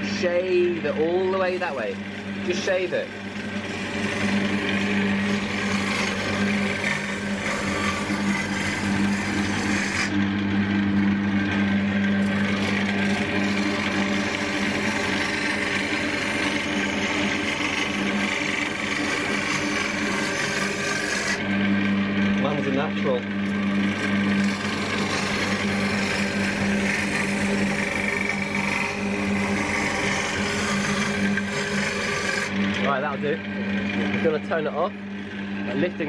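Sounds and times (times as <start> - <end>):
gouge rasping on wood: 0.0 - 10.2, 12.2 - 21.5, 23.5 - 32.6
lathe motor hum: 0.0 - 36.0.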